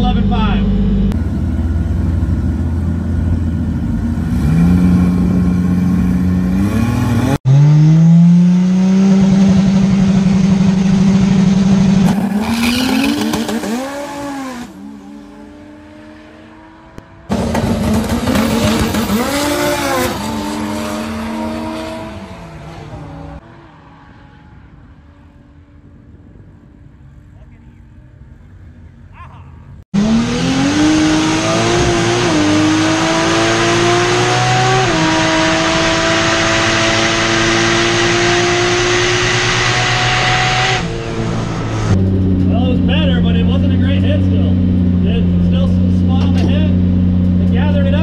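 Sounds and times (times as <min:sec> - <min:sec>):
drag car engine accelerating: 0:00.0 - 0:25.8, 0:30.0 - 0:48.0.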